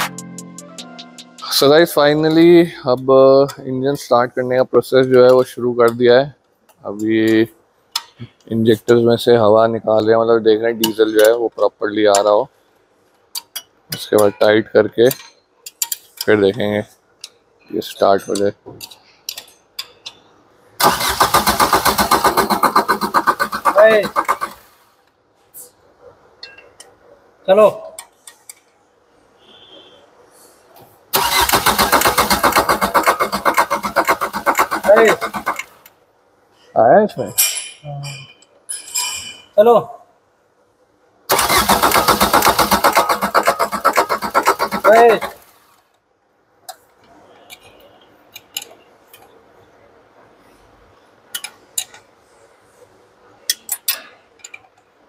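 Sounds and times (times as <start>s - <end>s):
starter motor cranking engine: 20.8s - 24.7s, 31.2s - 35.8s, 41.3s - 45.5s
metallic clinks of tools: 37.3s - 39.6s.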